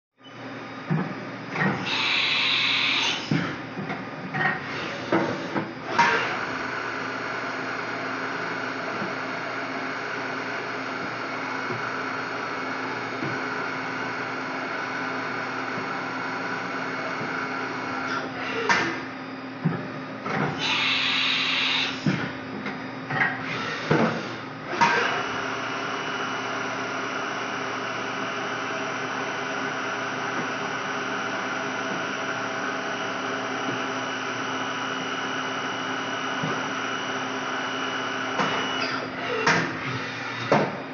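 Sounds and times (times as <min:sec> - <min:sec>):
machine hum with held tones: 0:00.2 - 0:40.9
high-pitched machine whirs: 0:01.6 - 0:03.4, 0:20.6 - 0:22.2.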